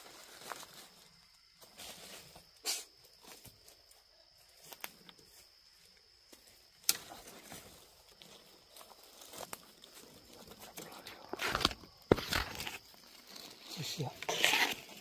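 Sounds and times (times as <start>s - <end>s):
branches and leaves rustling: 0.0s - 15.0s
twigs snapping: 6.3s - 7.7s.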